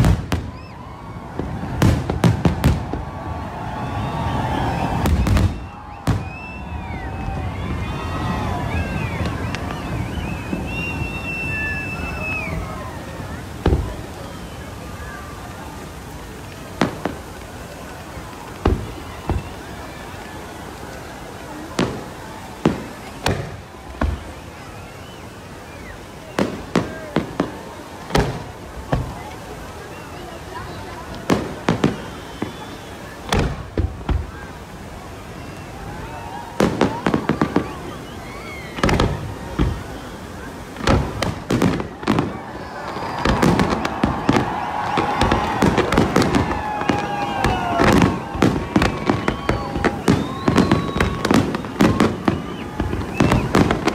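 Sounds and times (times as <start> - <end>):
fireworks bursting with sharp bangs: 0.0 - 53.9
falling whistling tone: 3.6 - 13.1, 18.8 - 20.6, 24.0 - 27.1, 31.8 - 33.2, 35.3 - 40.5, 42.2 - 53.9.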